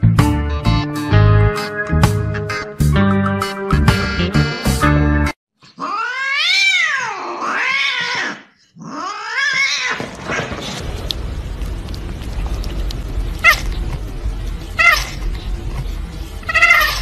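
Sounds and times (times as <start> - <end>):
cat yowling meows: 5.8 - 10.0, 14.8 - 15.2, 16.5 - 17.0.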